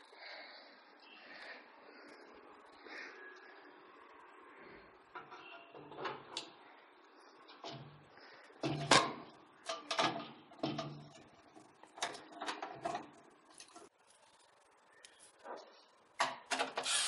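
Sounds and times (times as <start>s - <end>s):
computer parts clicking and knocking: 7.4s - 13.9s.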